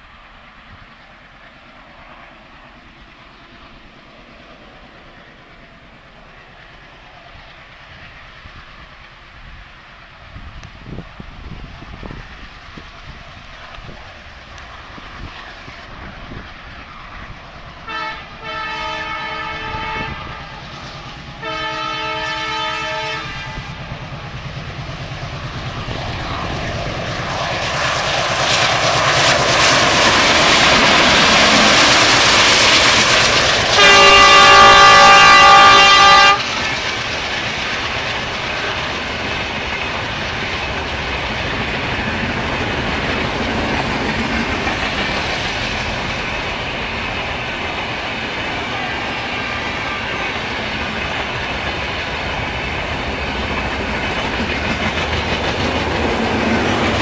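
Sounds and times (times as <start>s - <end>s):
locomotive engine and wheel noise: 0.0s - 57.0s
locomotive horn blasts: 17.9s - 20.6s, 21.4s - 23.6s, 33.7s - 36.4s
wheels clacking over rail joints: 24.0s - 57.0s.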